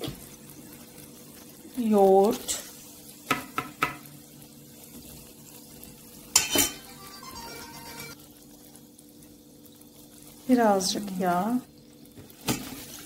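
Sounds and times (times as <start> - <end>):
kitchen utensil clatter: 6.4 - 6.9.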